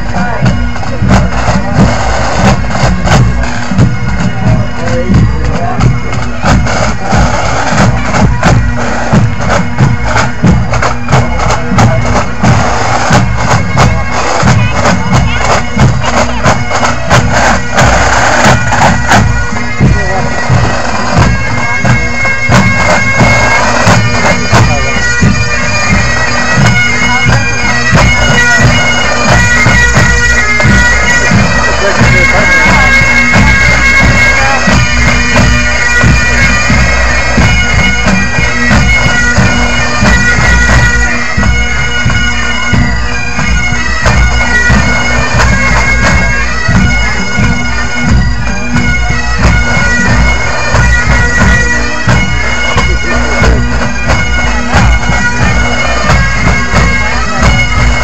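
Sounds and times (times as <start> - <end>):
bagpipes playing: 0.0 - 58.0
snare and bass drum beat: 52.8 - 58.0.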